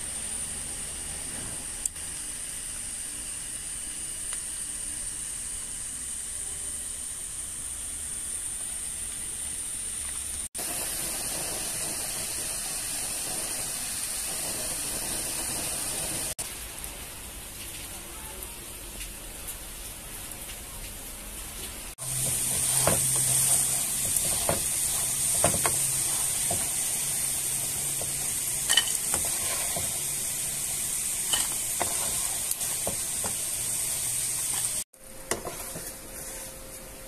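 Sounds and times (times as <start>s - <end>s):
gas burner hissing: 0.0s - 17.3s, 21.9s - 36.5s.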